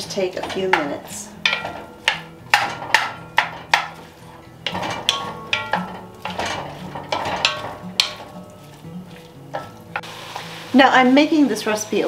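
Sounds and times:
wooden spoon knocking pot: 0.0s - 8.9s
food sauteing in butter: 0.0s - 12.0s.

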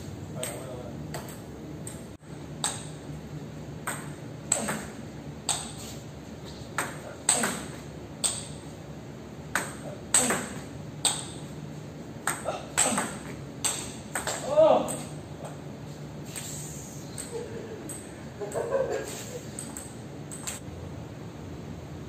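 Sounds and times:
ball clicking off rackets: 0.4s - 3.0s, 3.8s - 5.8s, 6.7s - 8.6s, 9.5s - 11.4s, 12.2s - 15.6s, 19.5s - 20.6s
ball bouncing on table: 3.8s - 4.9s, 12.3s - 15.1s.

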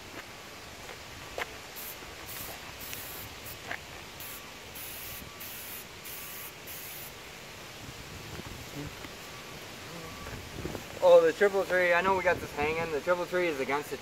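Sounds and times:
aerosol spray can hissing: 1.8s - 7.2s.

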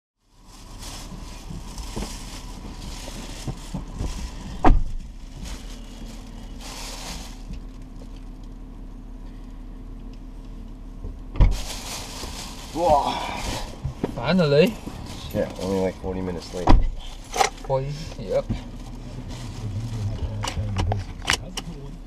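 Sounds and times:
plastic bag rustling: 0.2s - 8.6s, 11.5s - 20.7s
steady low hum: 0.2s - 22.0s.

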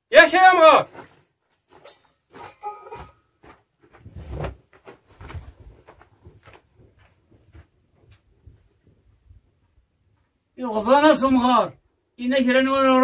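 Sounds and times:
footsteps on loose stones: 0.8s - 8.6s.

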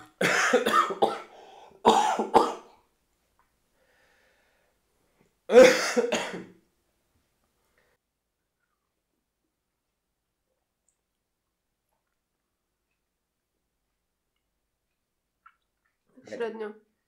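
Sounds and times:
man coughing: 0.0s - 2.7s, 5.5s - 6.6s.

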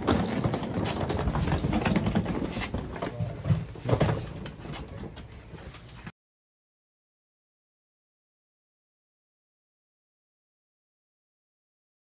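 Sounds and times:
bags knocking and rustling: 0.0s - 5.5s
footsteps: 0.0s - 6.1s.

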